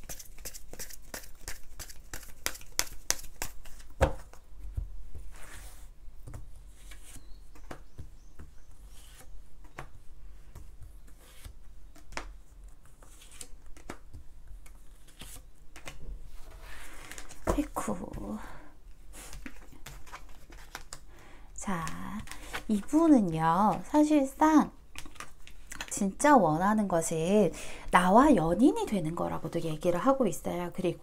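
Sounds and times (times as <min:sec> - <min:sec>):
cards being shuffled: 0:00.0 - 0:04.4, 0:10.5 - 0:16.0, 0:16.6 - 0:17.6, 0:19.2 - 0:21.0, 0:21.8 - 0:23.0, 0:24.9 - 0:26.0
cards rustling and flicking: 0:00.0 - 0:04.4, 0:06.3 - 0:16.1, 0:16.7 - 0:17.6, 0:19.2 - 0:21.1, 0:21.8 - 0:23.0, 0:24.9 - 0:26.0.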